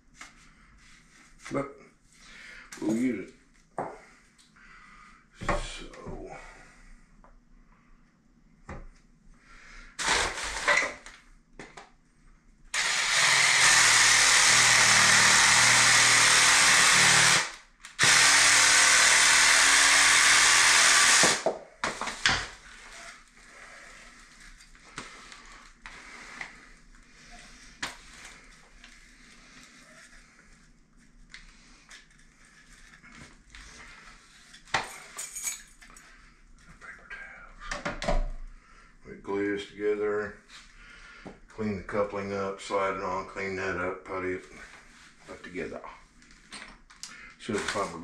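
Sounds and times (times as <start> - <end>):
power tool cutting plastic pipe: 10.0 - 11.0, 12.7 - 23.2.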